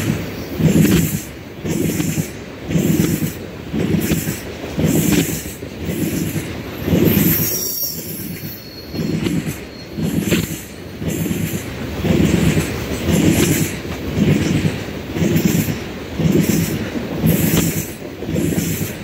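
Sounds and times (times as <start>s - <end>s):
train wheels clattering: 0.0s - 19.0s
wheel flange squeal: 7.0s - 11.0s.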